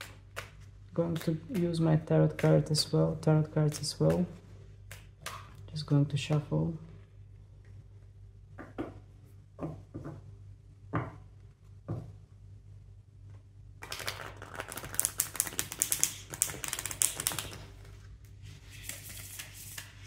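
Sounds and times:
cards riffle-shuffled: 0:13.8 - 0:18.0.

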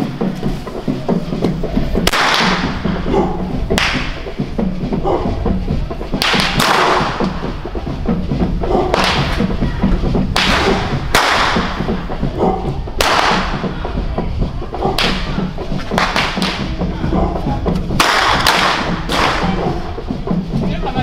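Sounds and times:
skin drums pounding: 0:00.0 - 0:21.0
whips cracking: 0:02.1 - 0:02.8, 0:03.8 - 0:04.1, 0:06.2 - 0:07.4, 0:08.9 - 0:09.4, 0:10.4 - 0:11.8, 0:13.0 - 0:13.5, 0:15.0 - 0:16.7, 0:18.0 - 0:19.6.

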